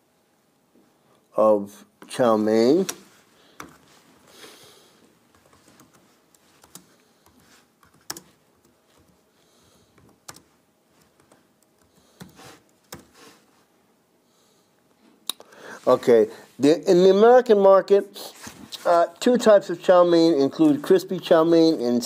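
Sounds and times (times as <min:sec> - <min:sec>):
laptop keyboard typing: 0:03.6 - 0:03.9, 0:05.3 - 0:09.2, 0:09.9 - 0:13.2.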